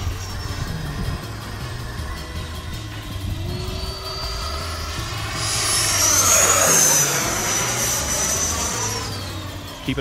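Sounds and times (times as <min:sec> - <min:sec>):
model jet fan whining: 0:00.0 - 0:10.0.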